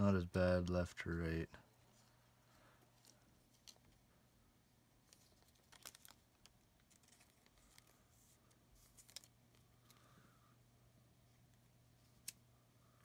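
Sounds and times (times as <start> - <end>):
low steady hum: 0.0 - 13.0
trading cards clicking and rustling: 2.8 - 4.0, 5.0 - 10.1.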